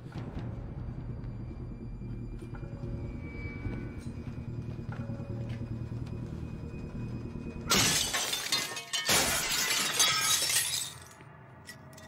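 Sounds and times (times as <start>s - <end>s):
glass shards scattering on floor: 7.7s - 11.2s
glass smashing: 7.7s - 11.2s.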